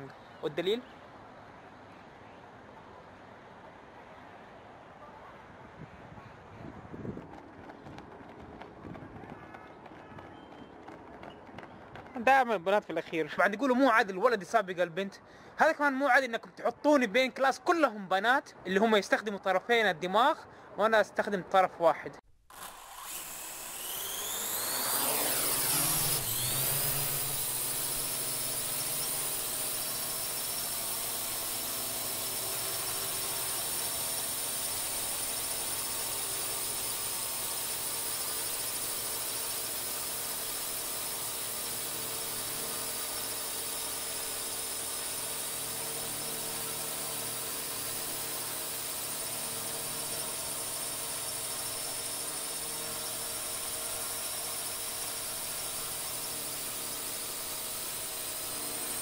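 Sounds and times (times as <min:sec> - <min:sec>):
drone motors whirring: 0:22.5 - 0:59.0.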